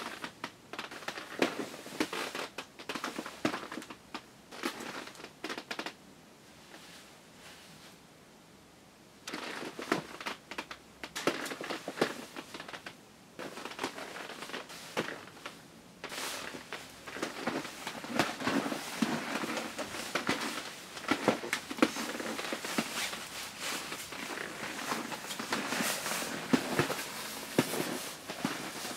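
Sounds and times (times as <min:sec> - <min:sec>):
nylon clothing rustling: 0:09.3 - 0:28.9.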